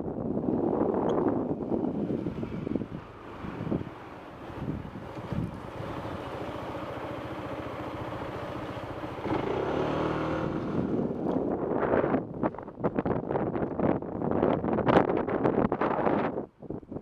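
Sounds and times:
motorcycle engine running: 0:02.7 - 0:11.8.

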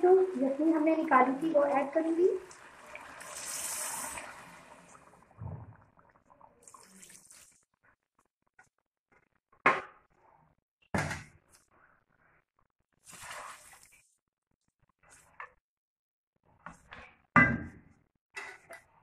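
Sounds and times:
spatula swishing liquid: 0:13.0 - 0:14.2.

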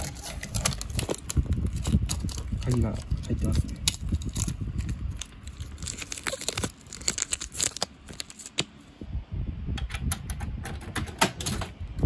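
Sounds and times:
wrapper crinkling and rustling: 0:00.0 - 0:08.7.

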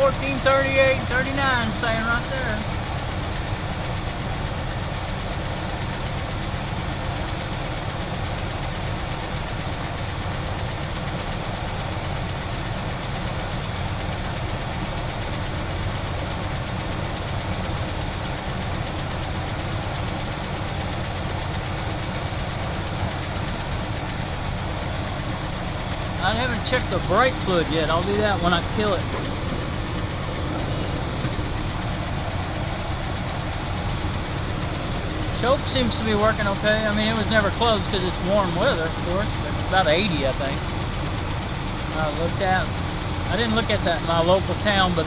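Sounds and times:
car engine idling: 0:00.0 - 0:45.0
steady high whine: 0:00.0 - 0:45.0.

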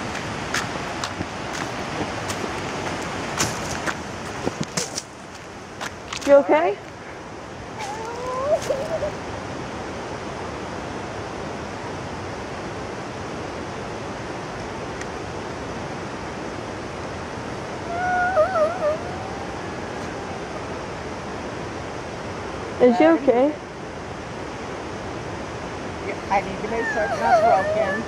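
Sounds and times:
river water rushing: 0:00.0 - 0:28.0
short wavering whimper: 0:07.8 - 0:09.2, 0:17.8 - 0:20.7, 0:26.8 - 0:28.0.

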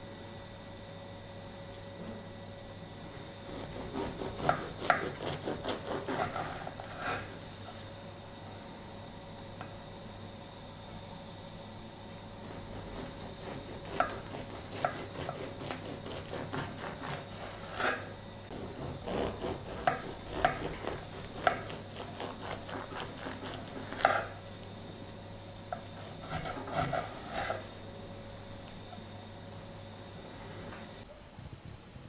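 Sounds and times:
knife sawing through bread crust: 0:03.4 - 0:07.4, 0:12.4 - 0:24.4, 0:26.0 - 0:27.7.

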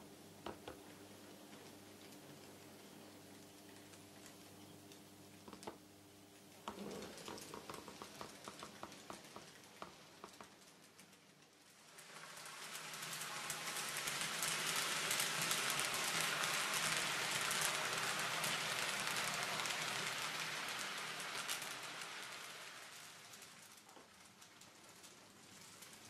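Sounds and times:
model train wheels clicking: 0:06.7 - 0:26.0
model train rolling hiss: 0:11.8 - 0:23.9.

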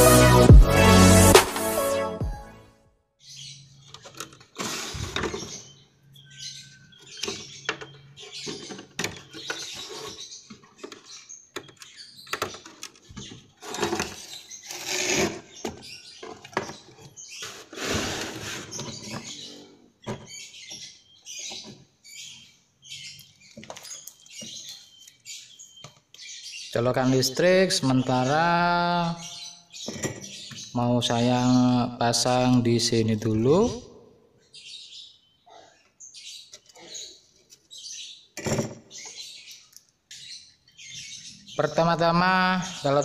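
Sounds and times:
parts clattering and scraping: 0:07.0 - 0:21.8.

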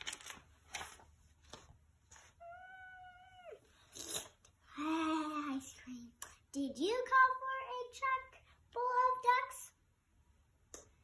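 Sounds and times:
book pages rustling: 0:00.0 - 0:02.4
cat meowing: 0:02.4 - 0:03.7.

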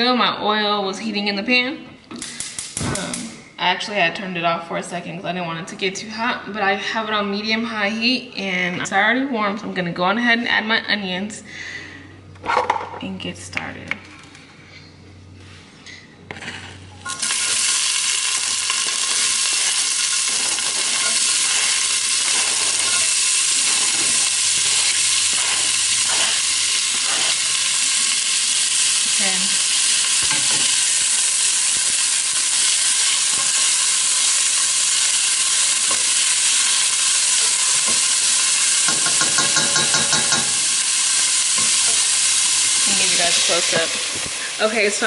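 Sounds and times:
onion sizzling in hot oil: 0:17.0 - 0:45.0
spoon stirring and scraping pot: 0:18.7 - 0:28.1, 0:35.5 - 0:40.6.

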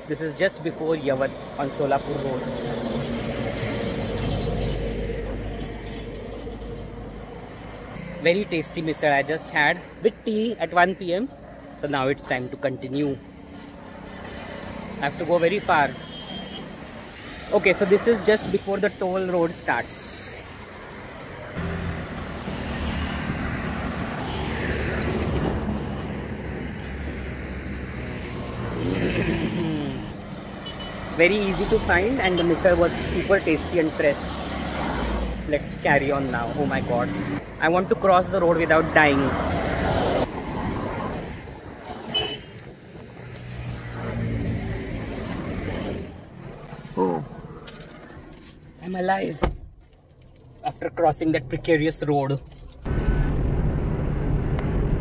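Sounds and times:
vehicles passing on highway: 0:00.0 - 0:55.0.

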